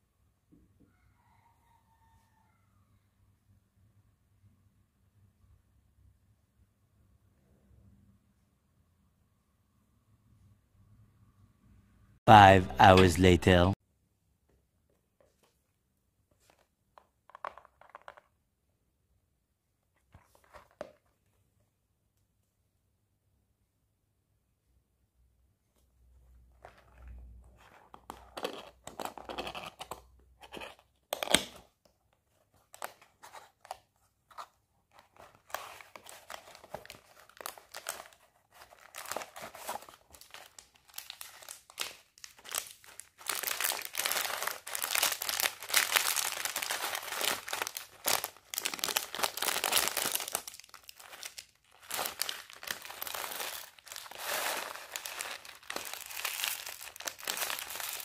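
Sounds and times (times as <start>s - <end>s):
plastic bag crinkling: 35.6s - 58.0s.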